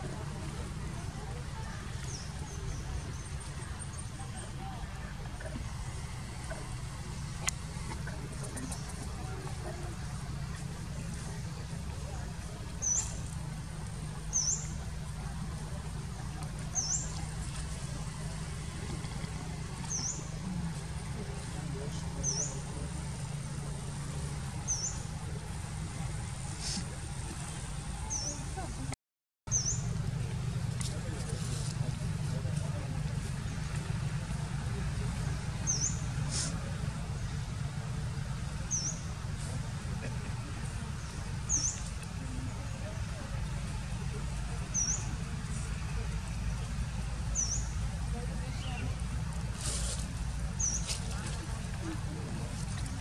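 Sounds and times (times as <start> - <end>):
low outdoor rumble: 0.0 - 53.0
brief hiss: 26.5 - 26.9, 36.3 - 36.6.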